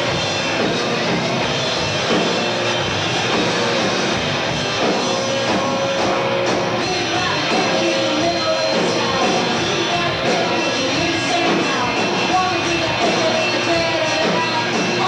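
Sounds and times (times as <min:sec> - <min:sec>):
drums: 0:00.0 - 0:15.0
electric guitar: 0:00.0 - 0:15.0
woman singing into a microphone: 0:06.8 - 0:15.0.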